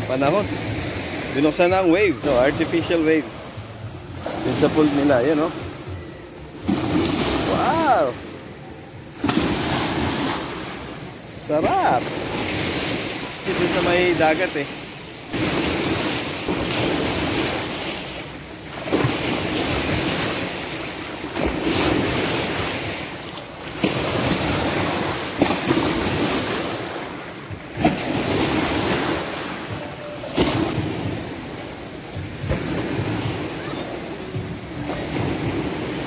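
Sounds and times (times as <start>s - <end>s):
waves rushing and splashing: 0.0s - 36.0s
sharp wave slap: 9.2s - 10.8s, 30.3s - 31.4s.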